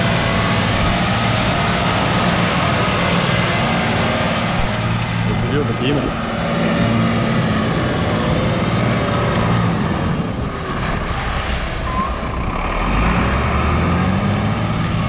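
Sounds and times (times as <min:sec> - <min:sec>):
truck diesel engine running: 0:00.0 - 0:15.0.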